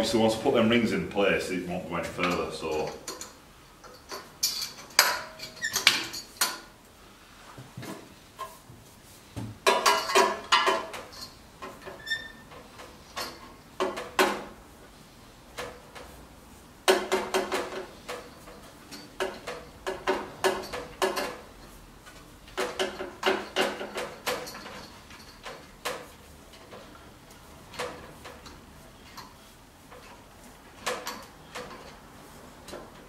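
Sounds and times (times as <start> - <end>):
metal exhaust parts clinking: 2.1 - 6.7, 9.6 - 14.5, 16.9 - 33.0.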